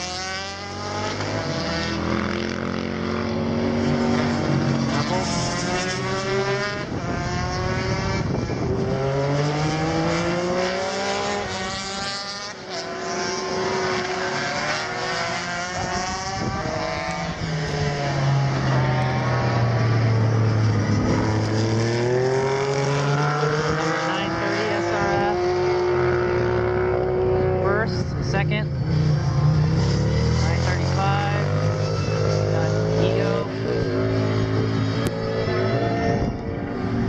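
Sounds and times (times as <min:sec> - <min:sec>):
racing motorcycles passing: 0:00.0 - 0:37.0
deep loud drone: 0:15.8 - 0:37.0.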